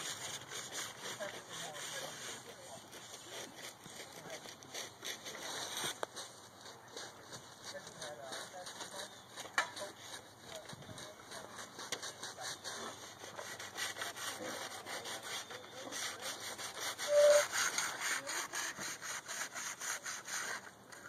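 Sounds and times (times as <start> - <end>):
rhythmic scraping strokes: 0.0 - 20.7
short high squeak: 17.1 - 17.5.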